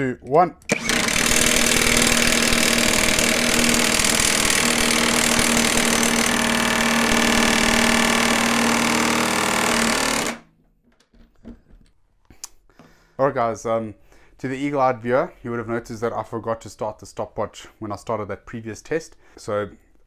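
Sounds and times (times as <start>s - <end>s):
impact wrench hammering: 0.7s - 10.4s.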